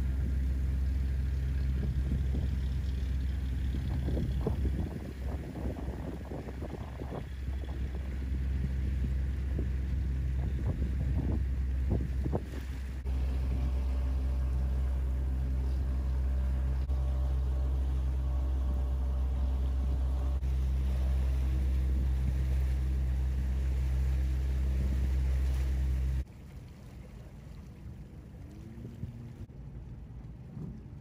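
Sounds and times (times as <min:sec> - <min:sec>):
boat diesel engine hum: 0:00.0 - 0:31.0
faint wind: 0:00.0 - 0:31.0.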